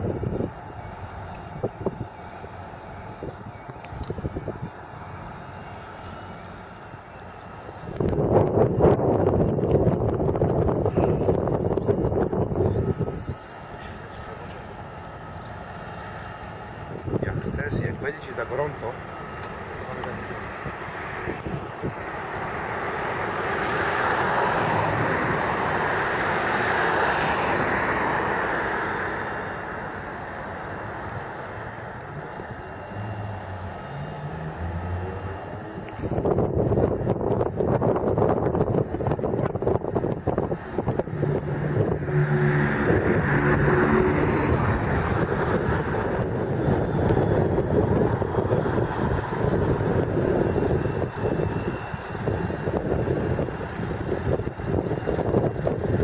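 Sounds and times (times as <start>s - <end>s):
wind noise on microphone: 0.0s - 2.2s, 3.1s - 5.2s, 7.8s - 13.9s, 16.8s - 18.2s, 20.4s - 28.1s, 32.2s - 56.0s
diesel locomotive idling: 0.0s - 55.9s
rushing engine passing: 40.4s - 51.1s.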